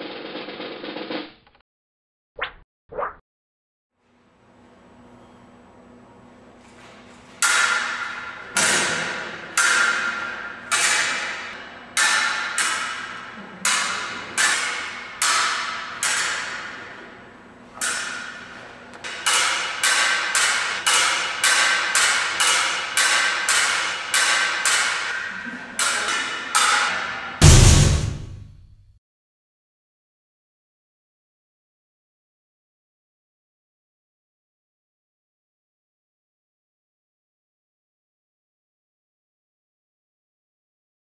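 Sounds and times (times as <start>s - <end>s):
fencing blades clashing: 7.4s - 27.4s.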